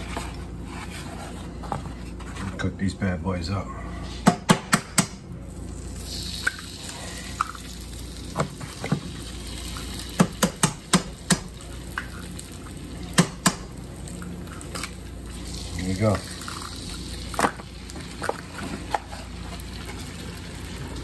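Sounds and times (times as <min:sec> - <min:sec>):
food sizzling in a pan: 0:05.7 - 0:21.0.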